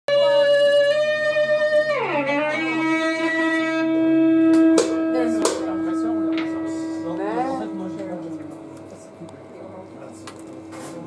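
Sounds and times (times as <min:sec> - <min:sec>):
electric guitar sustained note: 0:00.1 - 0:10.0
guitar string clicks: 0:04.4 - 0:05.7.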